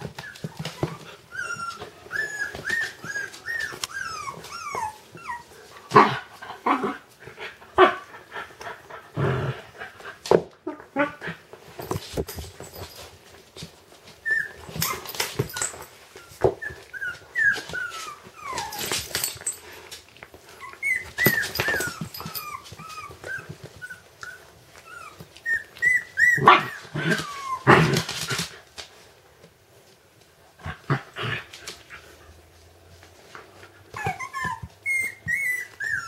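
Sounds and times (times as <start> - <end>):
puppies whimpering: 0.0 - 5.6, 14.2 - 19.0, 20.6 - 27.7, 33.9 - 36.0.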